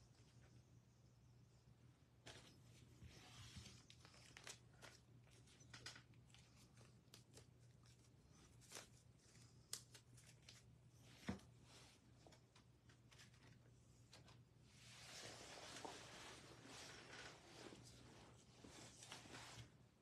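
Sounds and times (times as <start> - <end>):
faint low hum: 0.0 - 20.0
packaging crinkling: 3.8 - 8.0.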